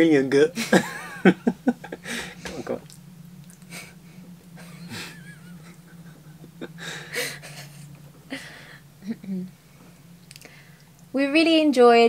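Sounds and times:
steady low hum: 0.0 - 12.0
stifled laughter: 0.6 - 2.8, 4.6 - 9.5.

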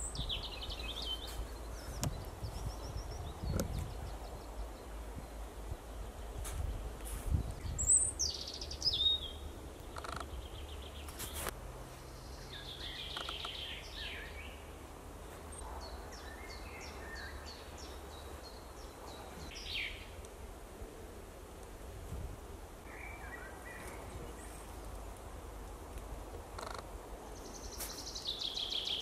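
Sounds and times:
birds calling and singing: 0.0 - 6.4, 7.2 - 20.2, 22.9 - 24.8, 26.5 - 29.0
sharp clicks: 9.8 - 10.3.

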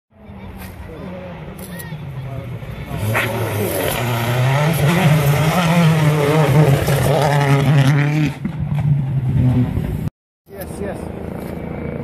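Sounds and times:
rally car engine at full revs: 2.2 - 10.1.

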